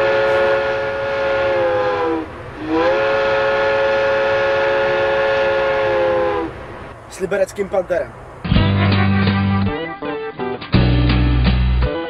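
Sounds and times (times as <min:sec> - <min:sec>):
train whistle blasts: 0:00.0 - 0:06.6.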